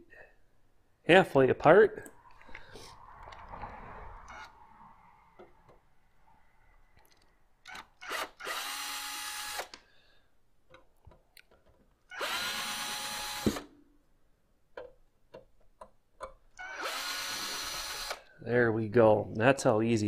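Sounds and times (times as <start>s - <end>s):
cordless drill driving out screws: 7.7s - 9.8s, 12.1s - 13.7s, 16.6s - 18.3s.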